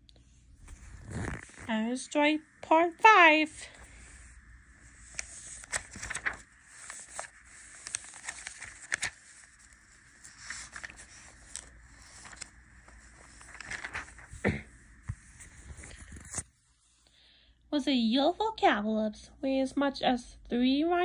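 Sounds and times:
soft rustling: 0.2 - 2.3, 3.1 - 16.9.

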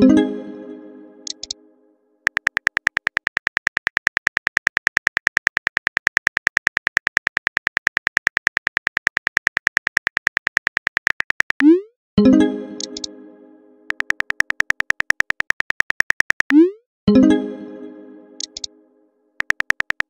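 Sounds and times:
phone keyboard clicks: 1.3 - 1.6, 2.3 - 11.7, 12.8 - 13.1, 13.9 - 16.6, 18.4 - 18.7, 19.4 - 20.0.

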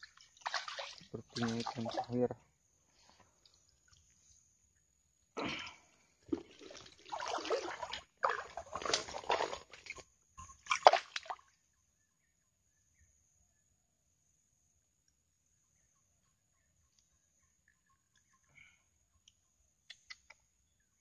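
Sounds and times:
water sloshing and splashing: 0.0 - 4.3, 6.1 - 11.5.

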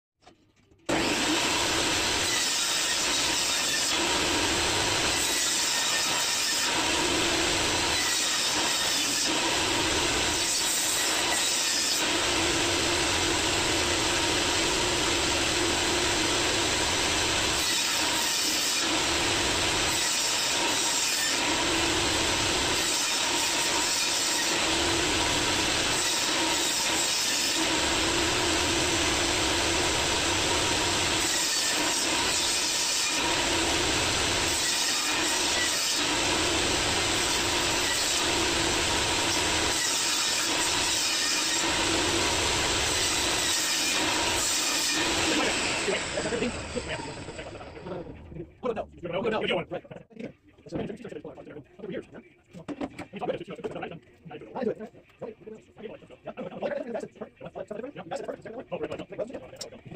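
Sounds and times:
workshop machinery running: 0.9 - 48.6.

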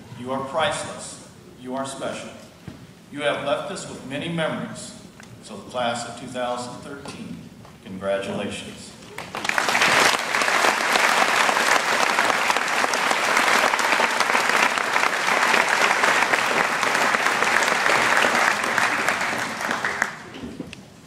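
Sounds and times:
large audience applauding: 9.1 - 20.4.

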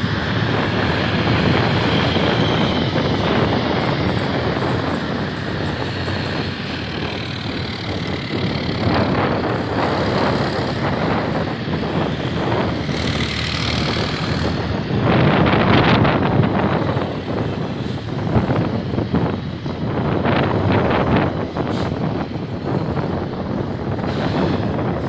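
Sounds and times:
heavy vehicles driving past: 0.0 - 25.0.

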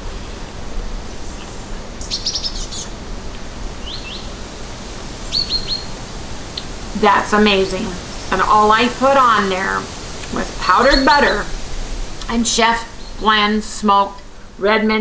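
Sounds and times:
small bird chirping: 0.0 - 3.0, 3.8 - 4.4, 5.2 - 6.8, 10.1 - 13.4
steady low hum: 0.0 - 15.0.

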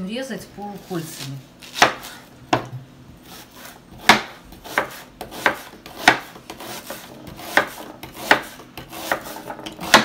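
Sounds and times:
knife slicing onion on cutting board: 1.2 - 10.0.

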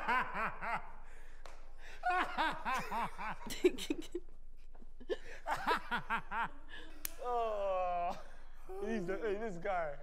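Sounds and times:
woman laughing: 2.0 - 4.2, 5.0 - 7.4.

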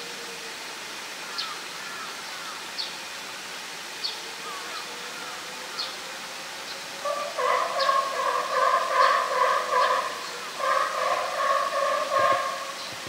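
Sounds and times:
pulsing animal call: 7.0 - 12.9.

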